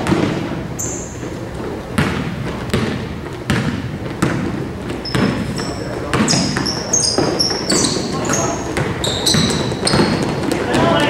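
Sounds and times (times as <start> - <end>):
basketball bouncing on court: 0.0 - 11.0
sneakers squeaking: 0.0 - 11.0
voices: 5.1 - 11.0.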